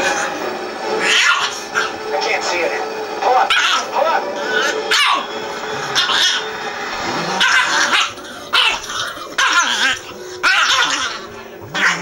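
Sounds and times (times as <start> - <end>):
puppies yapping and barking: 4.5 - 5.3, 7.3 - 12.0.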